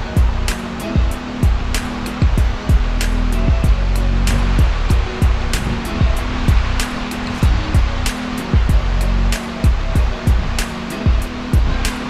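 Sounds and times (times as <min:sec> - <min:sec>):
deep drum hits: 0:00.0 - 0:06.8, 0:07.4 - 0:08.0
held low notes: 0:00.0 - 0:12.0.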